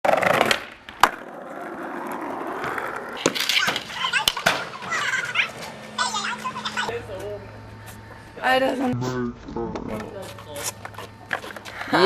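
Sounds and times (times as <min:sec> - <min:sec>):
skateboard wheels rolling on pavement: 0:00.0 - 0:08.3
skateboard clacks: 0:00.1 - 0:05.6.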